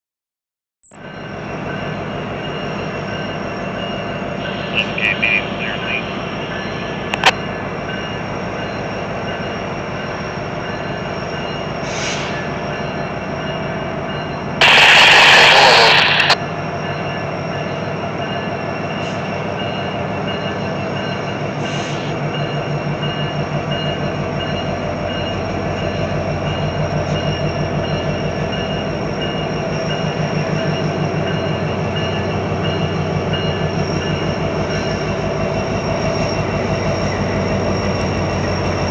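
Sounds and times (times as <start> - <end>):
diesel locomotive engine drone: 0.8 - 38.9
loud air hiss: 11.8 - 12.4, 14.6 - 16.4.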